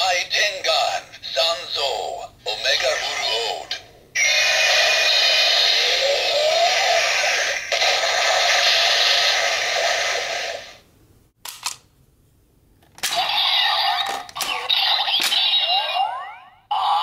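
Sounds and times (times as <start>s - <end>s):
loud toy electronic sound: 1.3s - 10.8s, 13.0s - 17.0s
toy electronic sound effects: 4.2s - 10.8s, 13.1s - 17.0s.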